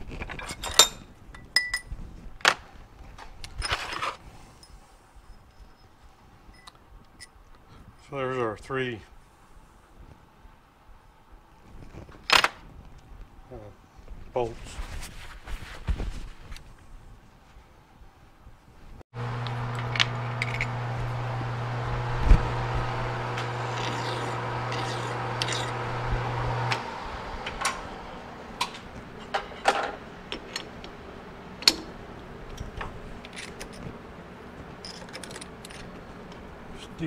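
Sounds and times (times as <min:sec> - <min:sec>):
lathe motor humming: 0:19.2 - 0:32.5
metal clicks and clinks: 0:34.8 - 0:36.0.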